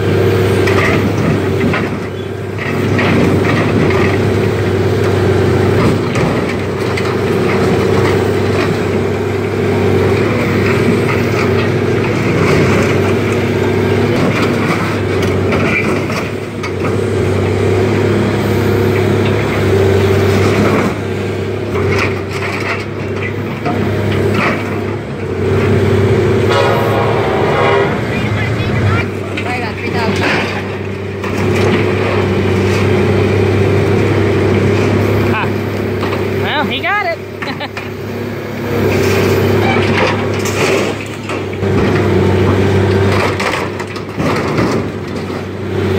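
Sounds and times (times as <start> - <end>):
diesel engine running: 0.0 - 45.9
metal scraping and crunching: 21.7 - 33.4, 38.8 - 45.6.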